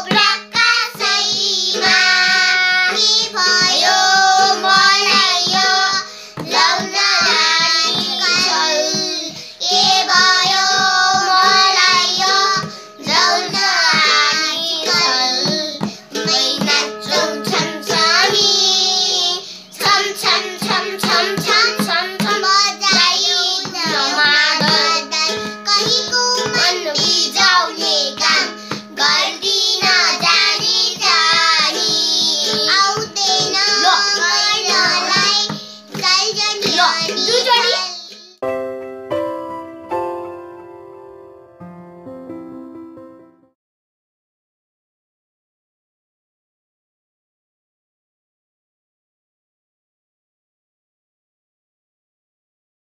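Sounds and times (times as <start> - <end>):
hand drum beating: 0.0 - 19.0, 19.8 - 37.8
children singing: 0.0 - 38.4
strummed toy ukulele: 0.0 - 38.4.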